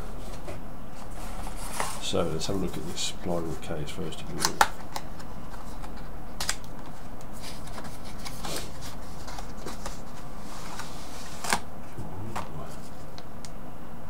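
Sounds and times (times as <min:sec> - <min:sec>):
cardboard packaging scraping and rustling: 0:00.0 - 0:03.6, 0:06.8 - 0:11.6.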